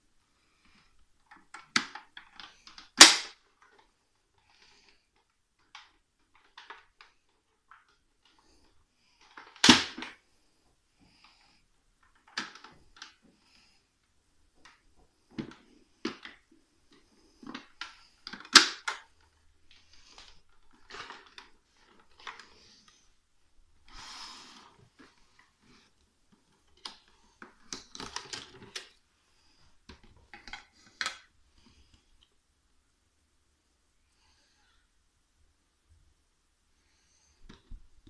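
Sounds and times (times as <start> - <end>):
plastic clicks knocks and rattles: 0.7 - 10.2, 12.0 - 13.2, 24.9 - 29.0, 29.8 - 32.0.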